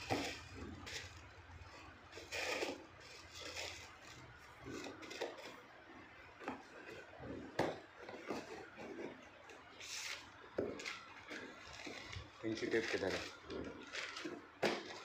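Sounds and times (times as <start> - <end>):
cardboard box scraping and rubbing: 2.1 - 5.7.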